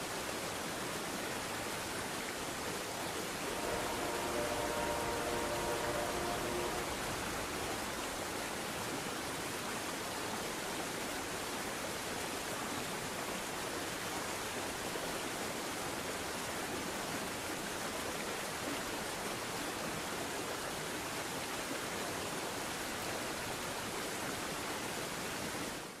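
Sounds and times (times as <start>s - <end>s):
steady hiss: 3.2s - 9.3s.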